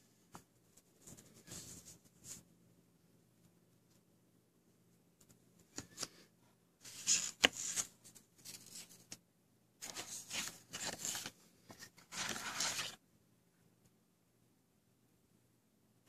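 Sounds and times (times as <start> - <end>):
plastic sleeve rustling and crinkling: 9.8 - 11.4, 12.0 - 13.0.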